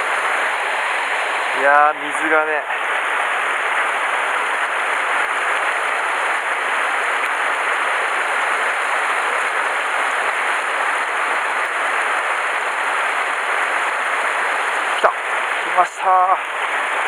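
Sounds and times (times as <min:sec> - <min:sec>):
stream rushing over rocks: 0:00.0 - 0:17.0.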